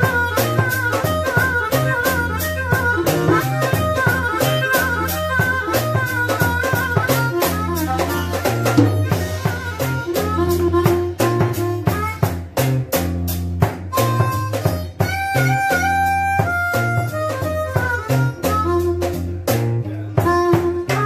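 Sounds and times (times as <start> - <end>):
drum kit: 0.0 - 21.0
harmonica melody: 0.0 - 21.0.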